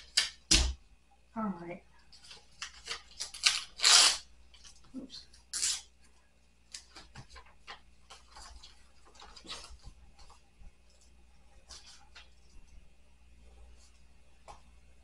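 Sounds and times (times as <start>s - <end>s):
papers rustling and scraping: 6.7s - 12.6s.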